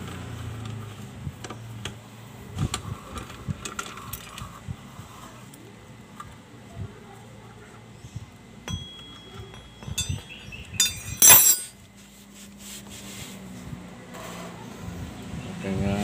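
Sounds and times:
ringing metal clink: 8.6 - 11.8
small metallic clinks: 8.6 - 11.8
loud metal clatter: 9.8 - 11.8.

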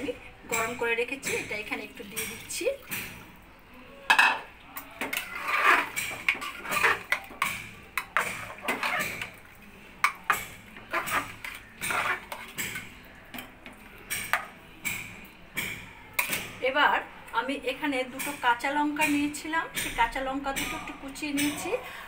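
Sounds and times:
metal ladle scraping pot: 4.1 - 15.2.

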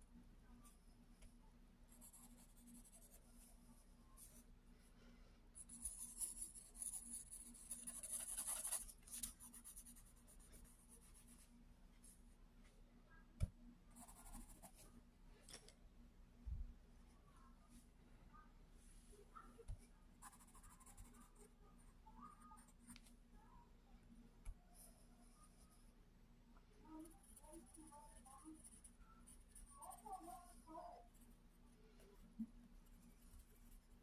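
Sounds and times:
pencil scratching on paper: 5.6 - 11.5, 14.0 - 14.8, 20.2 - 21.6, 27.0 - 31.3.

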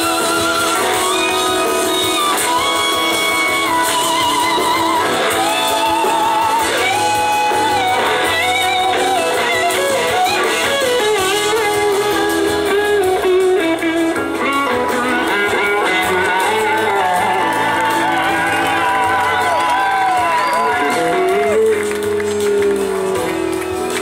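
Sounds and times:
electric slide guitar solo: 0.0 - 24.0
rock band playing: 0.0 - 24.0.

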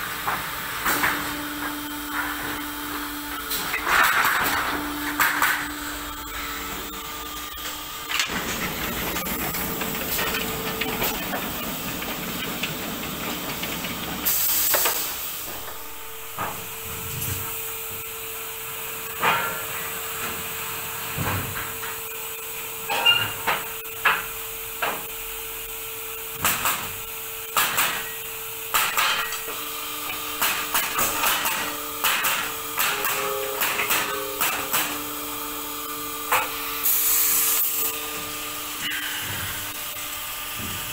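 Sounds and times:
steady machine hum: 0.0 - 40.9
wood and metal knocks and clatters: 8.1 - 14.3
loud burst of air hiss: 14.2 - 15.5, 36.8 - 38.0.

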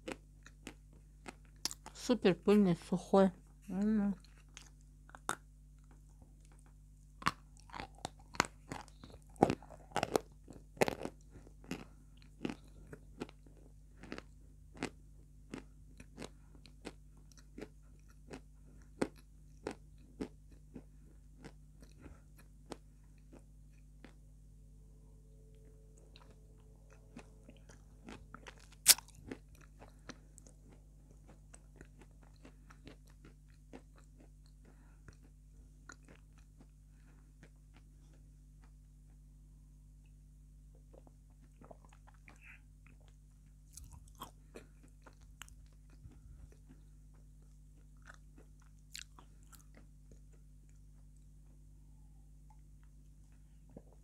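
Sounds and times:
chewing crunchy chalk: 26.1 - 35.3.

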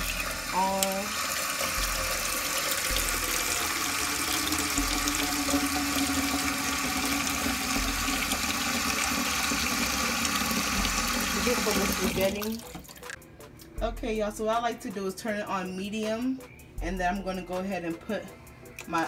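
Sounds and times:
tap water running into metal pot: 0.0 - 13.2.

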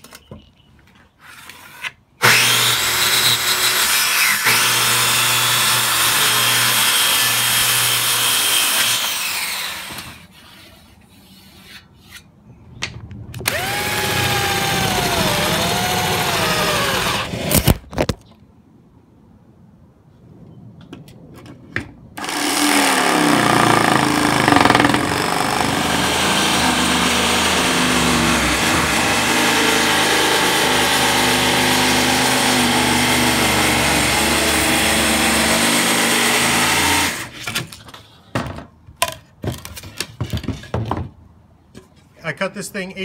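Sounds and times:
jigsaw cutting plywood: 2.2 - 10.2, 13.5 - 17.8, 22.2 - 37.4.

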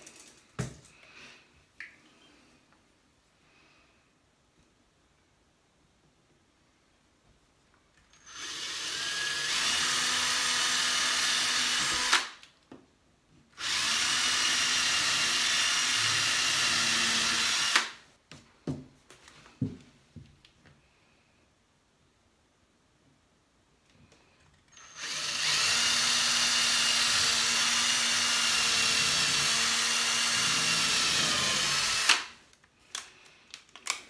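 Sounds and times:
cordless drill boring into wood: 8.1 - 12.4, 13.6 - 18.0, 24.7 - 32.4.

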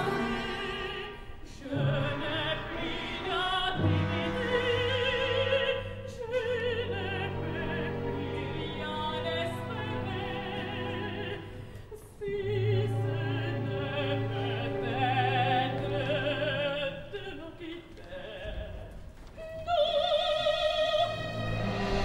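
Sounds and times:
orchestra playing: 0.0 - 11.7, 12.4 - 16.9, 20.8 - 22.0
opera singer singing: 0.0 - 22.0.

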